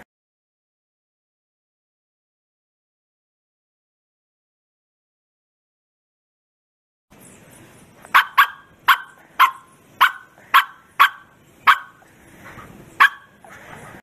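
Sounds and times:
dog barking: 8.1 - 12.0, 13.0 - 13.5.

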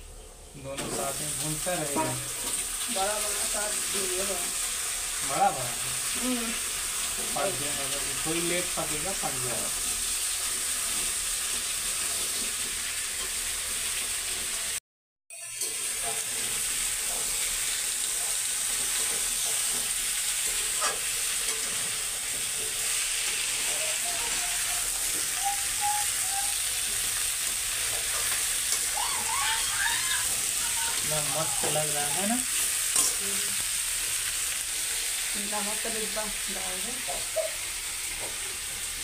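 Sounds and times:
food sizzling in oil: 0.0 - 39.0
spatula scraping pan: 15.6 - 25.4.

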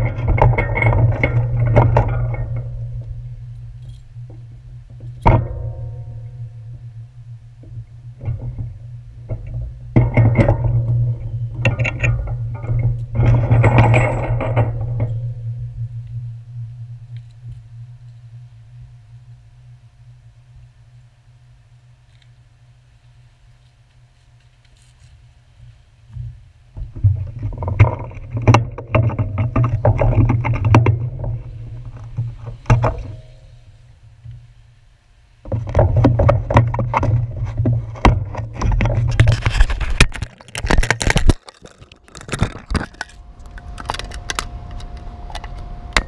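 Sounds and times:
sharp clicks and knocks: 0.0 - 6.8, 7.6 - 16.2, 26.1 - 33.4, 35.4 - 46.0
hand gripping camera: 39.1 - 44.5.

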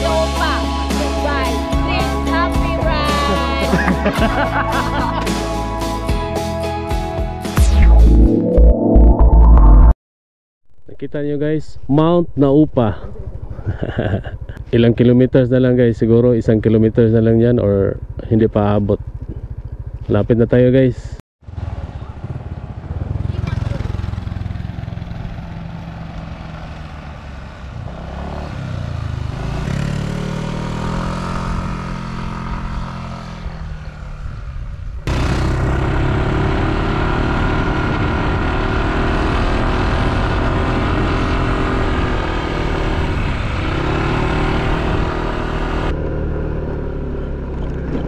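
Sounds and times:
scooter engine running: 0.0 - 5.4, 17.8 - 20.4, 21.5 - 48.0.

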